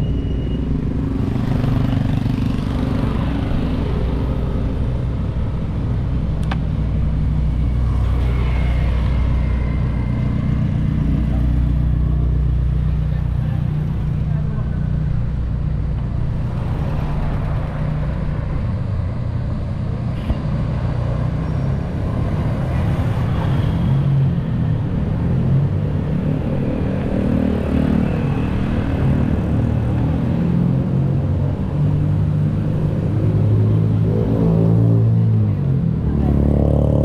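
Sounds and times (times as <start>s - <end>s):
road and wind noise: 0.0s - 37.0s
click: 6.4s - 6.6s.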